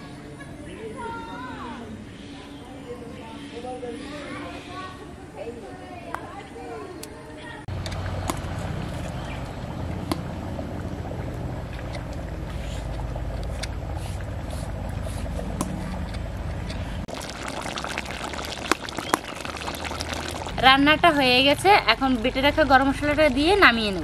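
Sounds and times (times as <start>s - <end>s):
steady low hum: 7.6s - 18.6s
curry bubbling in pan: 7.8s - 24.0s.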